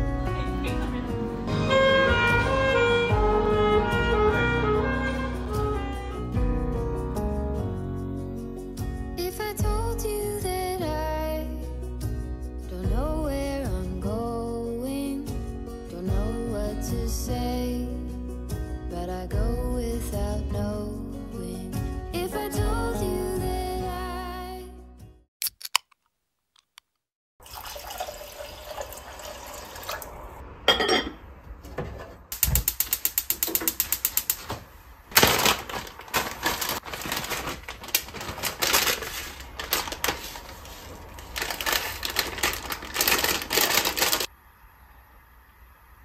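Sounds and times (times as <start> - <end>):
liquid sounds: 27.4 - 30.4.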